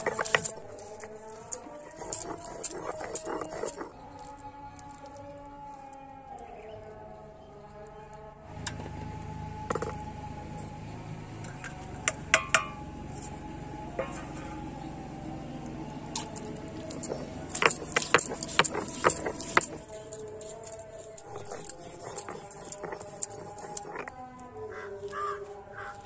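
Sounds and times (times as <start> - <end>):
grinding stone knocking on stone slab: 0.0 - 3.8, 9.7 - 10.1, 12.0 - 13.3, 16.1 - 24.1.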